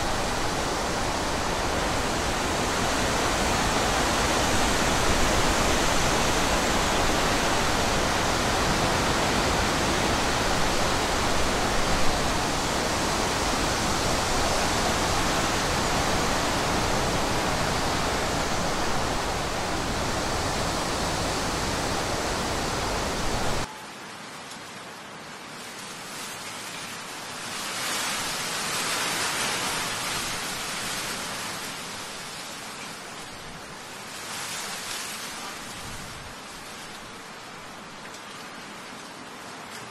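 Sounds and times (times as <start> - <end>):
wind buffeting microphone: 0.0 - 23.7
storm wind and rain: 0.0 - 39.9.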